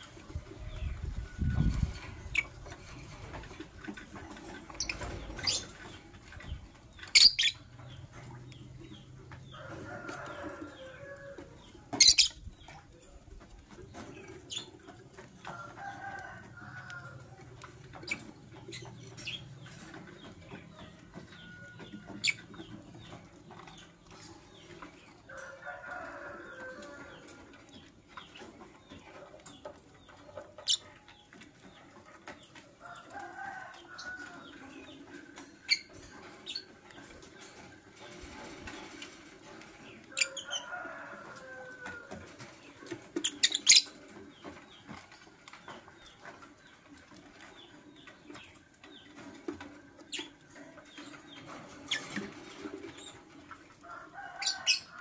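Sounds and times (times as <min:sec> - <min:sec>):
lovebirds chirping: 0:04.7 - 0:09.7, 0:10.3 - 0:12.7.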